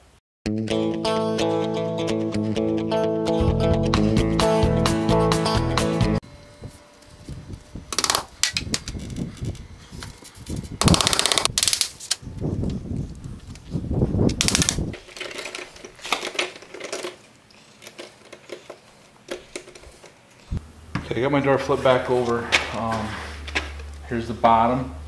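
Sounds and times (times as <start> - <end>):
impact driver rattling: 10.8 - 11.6, 14.3 - 17.2
knocks and handling clatter: 14.5 - 21.1.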